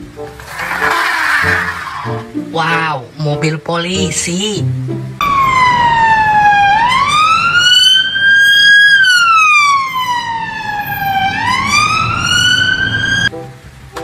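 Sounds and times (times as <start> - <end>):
police car siren wailing: 5.2 - 13.3.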